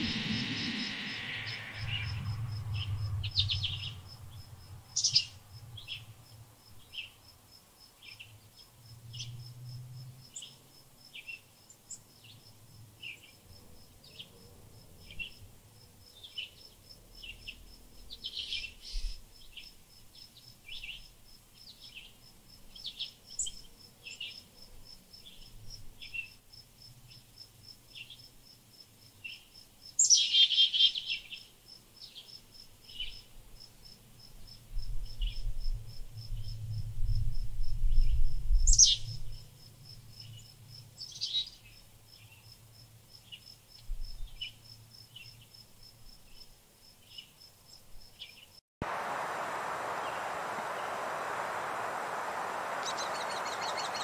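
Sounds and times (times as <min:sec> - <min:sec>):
songbirds chirping: 0:48.2 - 0:54.0
pulsing insect trill: 0:48.9 - 0:54.0.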